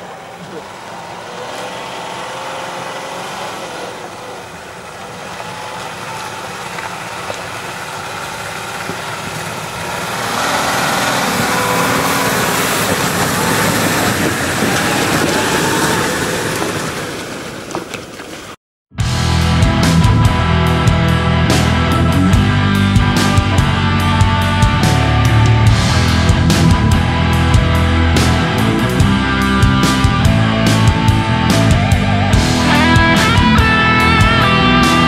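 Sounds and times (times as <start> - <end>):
car engine running: 0.0 - 17.3, 19.2 - 35.0
tyres on gravel and snow: 0.0 - 18.6.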